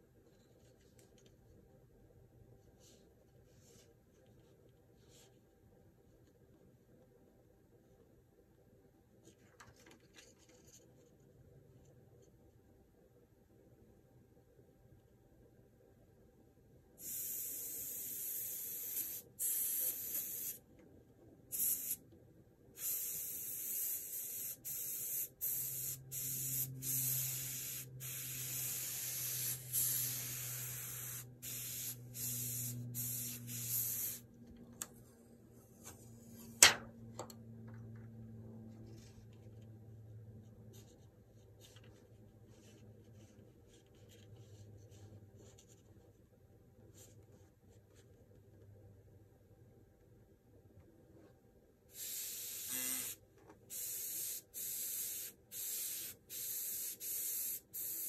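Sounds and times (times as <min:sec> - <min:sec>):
airbrush spraying bursts: 0:17.0 - 0:20.6, 0:21.5 - 0:22.0, 0:22.8 - 0:34.3, 0:52.0 - 0:58.0.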